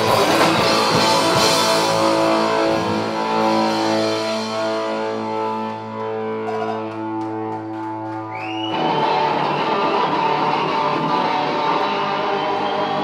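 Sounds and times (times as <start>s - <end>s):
rock band playing: 0.0s - 13.0s.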